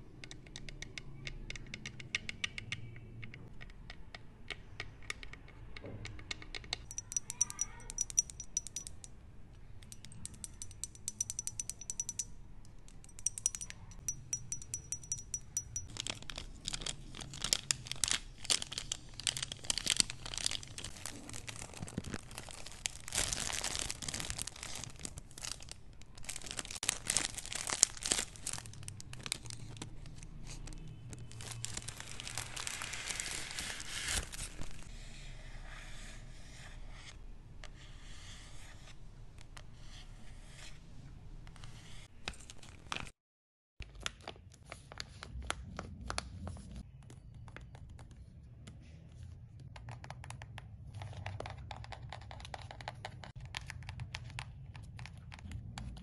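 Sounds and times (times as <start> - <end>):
plastic sachet crinkling and tearing: 15.9 - 34.9.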